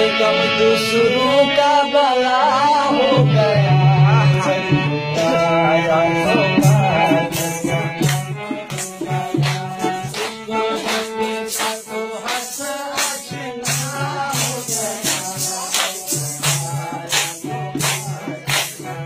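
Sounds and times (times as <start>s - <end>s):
harmonium melody: 0.0s - 19.0s
steady beat of sharp strikes: 6.4s - 19.0s.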